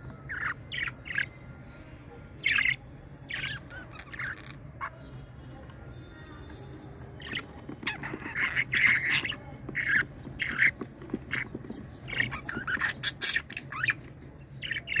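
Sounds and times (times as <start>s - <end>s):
budgerigars squawking: 0.3s - 1.3s, 2.4s - 5.2s, 7.2s - 15.0s.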